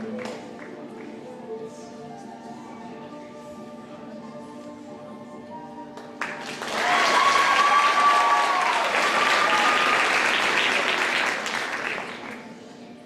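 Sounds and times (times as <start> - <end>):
audience applauding and cheering: 6.2 - 12.5
long held whoops: 6.7 - 10.2.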